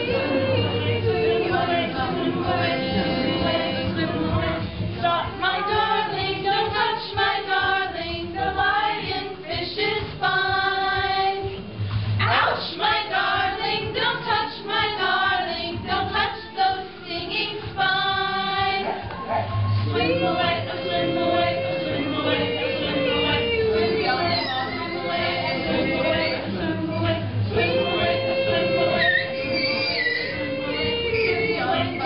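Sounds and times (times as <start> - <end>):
group of people singing: 0.0 - 32.0.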